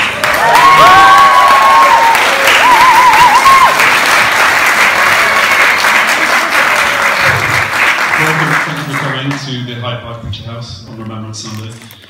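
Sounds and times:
audience applauding: 0.0 - 9.6
high wavering cheers: 0.2 - 3.9.

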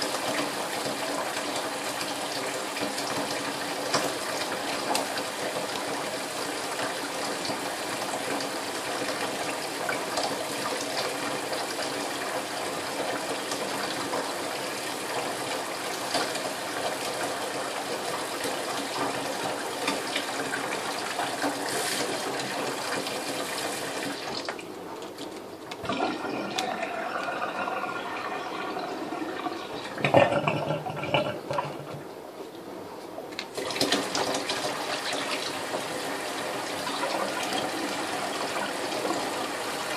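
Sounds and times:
tap running into metal sink: 29.8 - 32.0.

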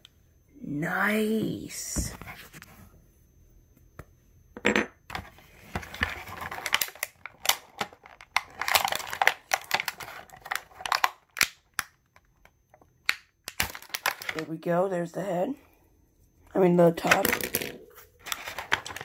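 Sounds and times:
plastic packaging crinkling: 5.5 - 12.0, 13.5 - 14.5, 18.2 - 19.0.

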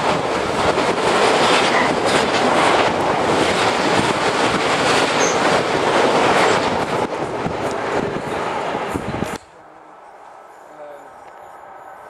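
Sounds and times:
train wheels rushing on rail: 0.0 - 12.0.

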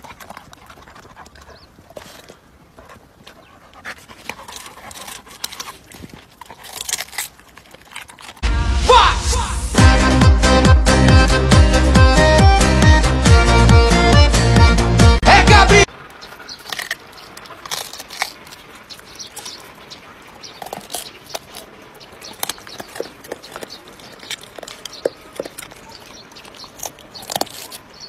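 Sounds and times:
dog chewing and crunching food: 0.0 - 8.5, 15.8 - 28.0.

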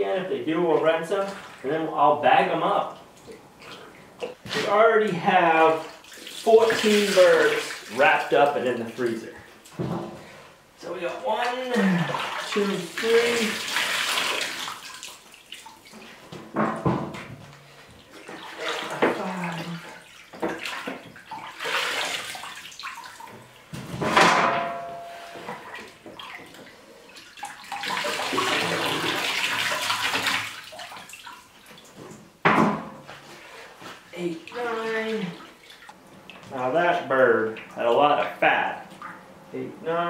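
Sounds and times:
water splashing: 0.9 - 2.0, 3.0 - 9.3, 11.3 - 16.2, 18.0 - 23.7, 24.4 - 32.0, 34.1 - 39.2.

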